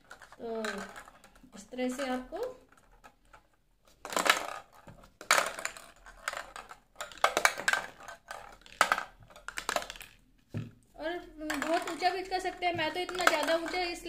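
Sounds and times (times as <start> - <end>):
plastic balls rattling on steel tray: 0.0 - 14.0.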